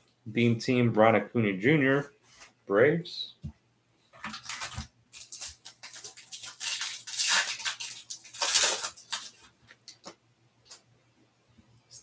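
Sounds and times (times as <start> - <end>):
foil pack tearing open: 4.2 - 9.5
foil wrapper crinkling: 4.2 - 10.1.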